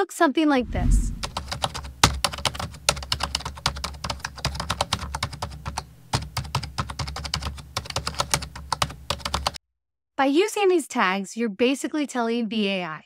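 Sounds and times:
low steady hum: 0:00.6 - 0:02.0
computer keyboard typing: 0:01.2 - 0:09.6.

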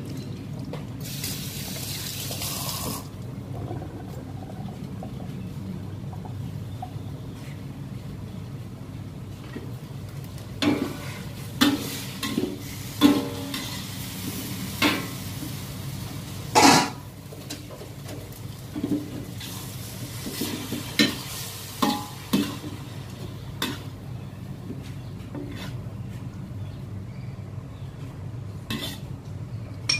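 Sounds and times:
noodles sizzling: 0:01.0 - 0:03.6, 0:10.6 - 0:24.2
gas burner flame roaring: 0:07.9 - 0:24.3
metal ladle scraping a wok: 0:25.4 - 0:25.8, 0:28.7 - 0:29.1.

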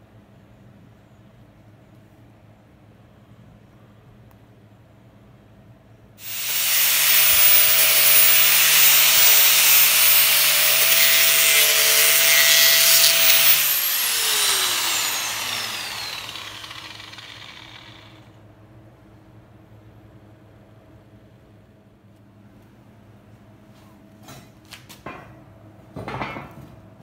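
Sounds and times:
angle grinder grinding steel: 0:06.2 - 0:18.2
grinder disc spinning down: 0:06.2 - 0:18.3.

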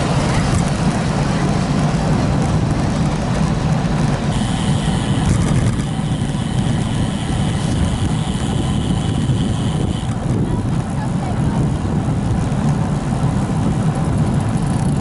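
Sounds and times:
wind rumbling on microphone: 0:00.0 - 0:15.0
thin high whine: 0:04.3 - 0:10.2.

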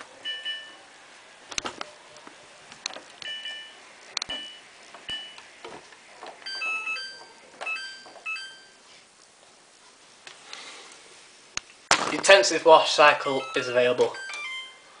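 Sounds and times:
control panel beeping: 0:00.2 - 0:00.8, 0:03.2 - 0:05.5, 0:06.4 - 0:08.8, 0:13.4 - 0:14.9.

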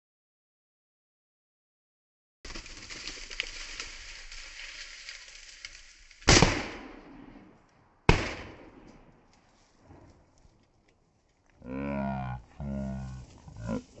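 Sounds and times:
shotgun shots with echo: 0:06.3 - 0:07.4, 0:08.1 - 0:09.1.

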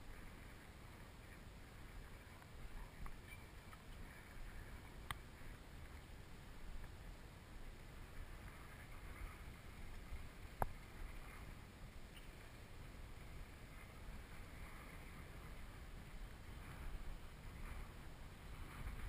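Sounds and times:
wind buffeting microphone: 0:06.8 - 0:19.0.

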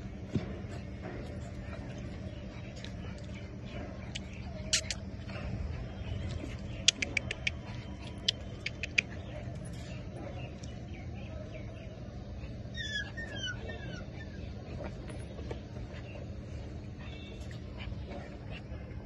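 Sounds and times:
puppies squealing: 0:12.7 - 0:14.6
puppies squeaking: 0:12.7 - 0:14.9.

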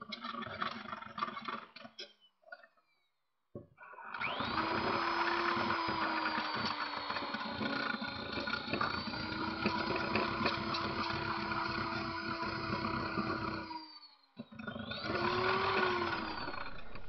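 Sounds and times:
electric drill whining: 0:04.1 - 0:17.0.

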